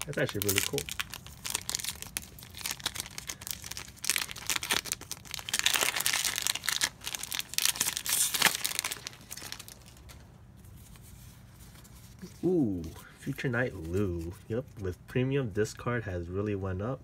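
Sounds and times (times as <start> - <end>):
wrappers crinkling and tearing: 0.0 - 10.2.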